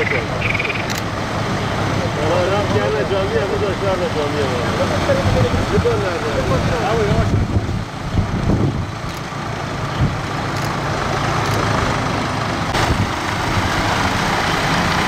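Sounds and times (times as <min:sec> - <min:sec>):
tractor diesel engine running: 0:00.0 - 0:15.0
water splashing around tyres: 0:00.0 - 0:15.0.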